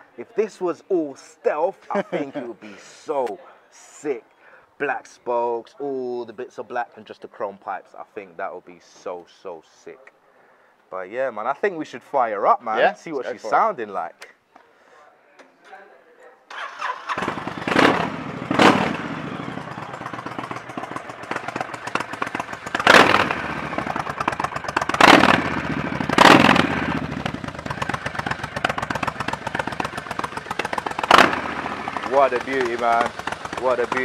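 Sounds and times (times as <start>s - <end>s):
motorcycle engine idling: 17.1s - 34.0s.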